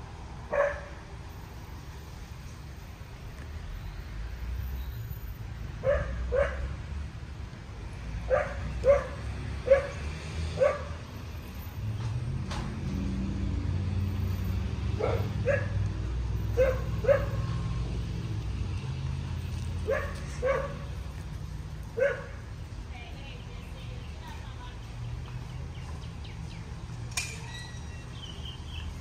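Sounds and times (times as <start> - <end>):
dog barking: 0.5 - 1.0, 5.8 - 6.8, 8.3 - 10.0, 10.6 - 11.0, 15.0 - 15.8, 16.6 - 17.6, 19.8 - 20.9, 22.0 - 22.5.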